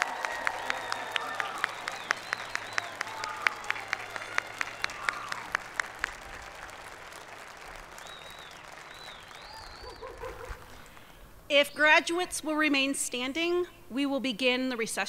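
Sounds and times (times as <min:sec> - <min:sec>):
sharp close claps: 0:00.0 - 0:11.0
audience applauding: 0:00.0 - 0:11.1.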